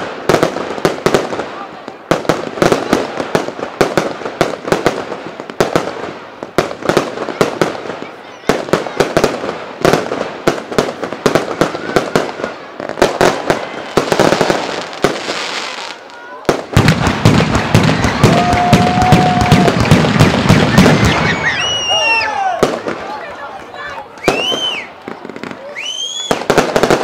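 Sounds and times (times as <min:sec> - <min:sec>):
fireworks bangs: 0:00.0 - 0:27.0
fireworks crackling: 0:00.0 - 0:27.0.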